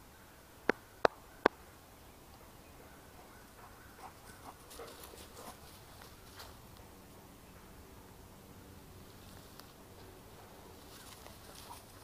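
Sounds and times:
dog running on grass: 3.6 - 6.6, 10.7 - 12.0.

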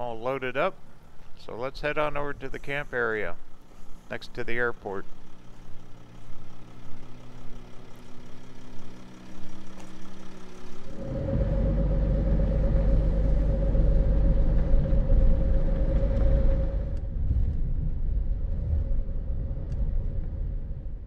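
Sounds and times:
vehicle engine rumbling: 0.0 - 21.0.

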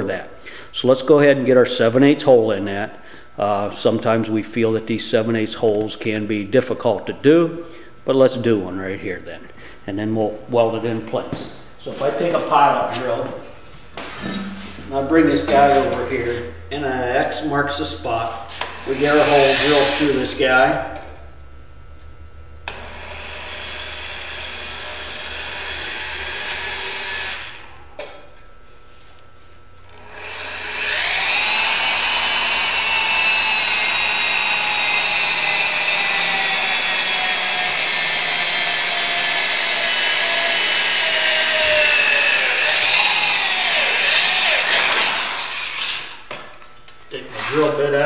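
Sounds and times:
electric drill boring through steel: 18.6 - 20.7, 22.7 - 27.9, 29.9 - 46.2.

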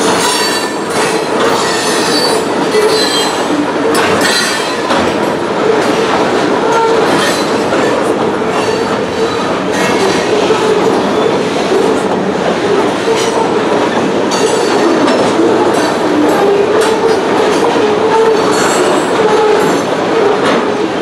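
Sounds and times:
freight train rolling past: 0.0 - 21.0
train wheels clacking over rails: 0.0 - 21.0.

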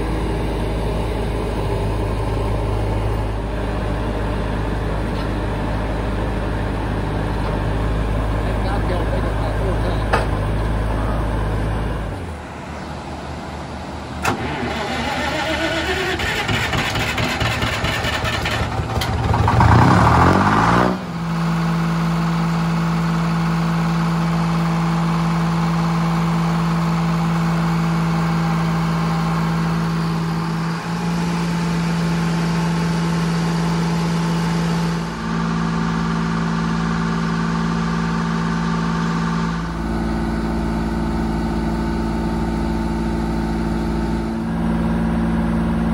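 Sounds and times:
diesel engine running sawmill: 0.0 - 45.9
engine click: 14.2 - 19.5.

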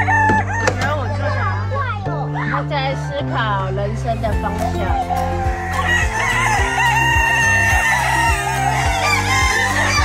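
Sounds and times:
background music with steady beat: 0.0 - 1.1, 1.8 - 10.0
chickens clucking: 4.2 - 10.0
rooster crowing: 5.2 - 10.0.

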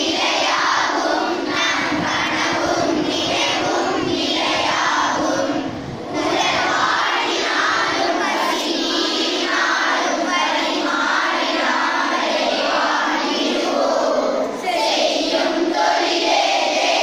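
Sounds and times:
children singing in unison: 0.0 - 17.0.

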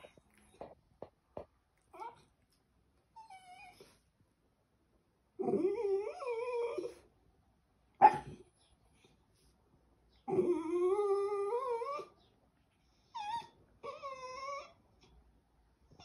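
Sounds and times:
dog whining: 1.9 - 2.4, 3.1 - 4.0, 5.4 - 7.1, 10.2 - 12.3, 13.0 - 15.1
dog yip: 8.0 - 8.4.

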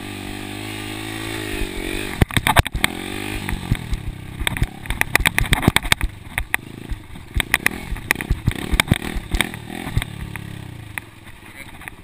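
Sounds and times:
dirt bike engine revving: 0.0 - 11.6
sharp knocks and rattles: 2.1 - 12.0.

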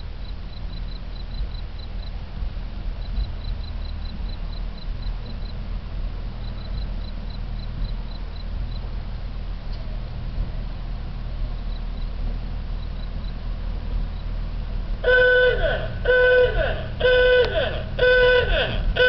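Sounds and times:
low rumble: 0.0 - 19.0
railcar horn blasts: 15.0 - 19.0.

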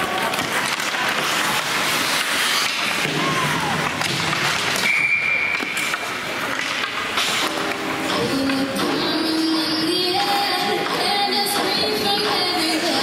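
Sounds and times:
crowd noise: 0.0 - 13.0.

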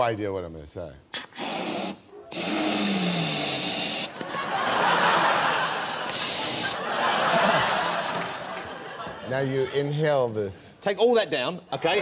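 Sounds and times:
helium hissing into balloon: 1.2 - 4.2, 5.8 - 6.8.

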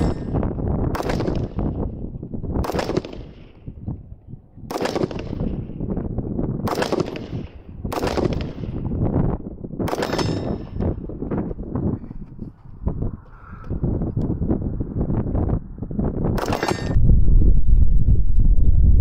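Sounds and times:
rifle shots: 0.0 - 1.9, 2.6 - 3.8, 4.7 - 5.9, 6.6 - 9.1, 9.8 - 11.0, 16.4 - 17.0.

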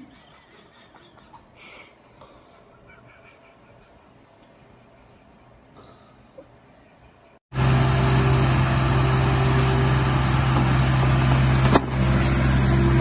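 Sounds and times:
engine running steadily: 7.5 - 13.0.

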